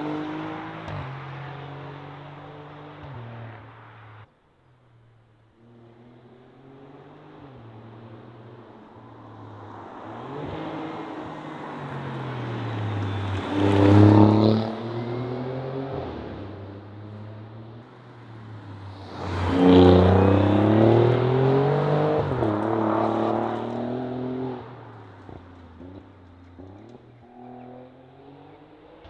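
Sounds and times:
car passing by: 8.9 - 17.4, 18.1 - 29.0.

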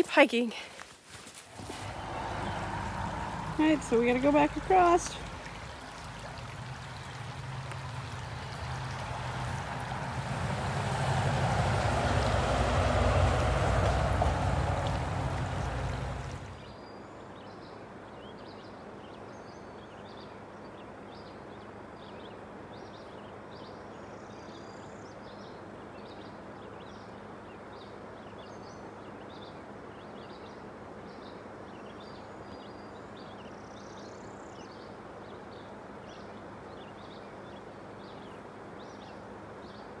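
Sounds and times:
shallow stream rushing: 1.4 - 16.7
small birds chirping: 1.5 - 17.6.

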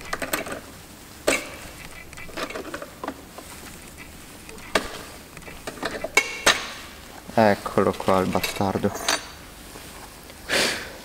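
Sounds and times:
clicks and light metal knocks: 0.0 - 6.8, 7.9 - 9.4.

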